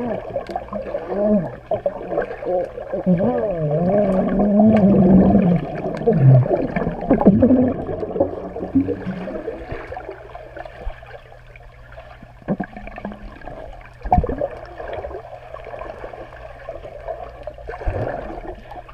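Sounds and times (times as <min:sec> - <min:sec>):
low hum: 0:00.0 - 0:18.9
underwater sloshing and bubbling: 0:00.0 - 0:18.9.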